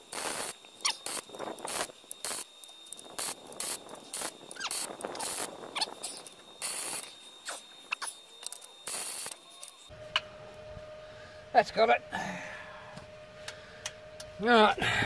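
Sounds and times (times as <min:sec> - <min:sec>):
welding arc crackling: 0:00.0 - 0:09.9
squeaky chirps: 0:00.8 - 0:01.2, 0:04.1 - 0:09.9.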